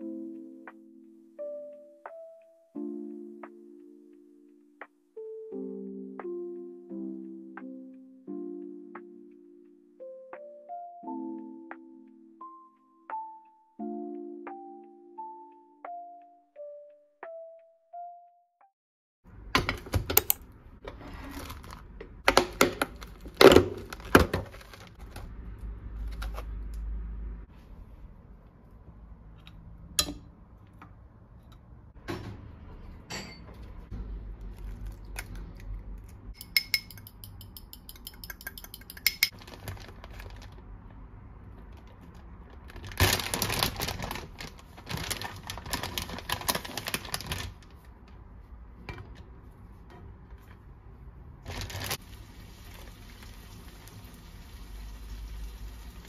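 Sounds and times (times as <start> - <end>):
plastic packaging rustling: 21.0 - 25.3, 39.3 - 40.7, 41.7 - 47.8, 51.4 - 52.1
glass clinking: 33.1 - 33.6, 36.4 - 39.3.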